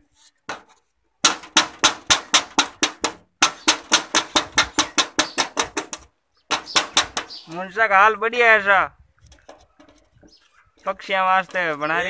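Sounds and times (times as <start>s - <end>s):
hammer striking sheet metal can: 0.5s - 7.5s.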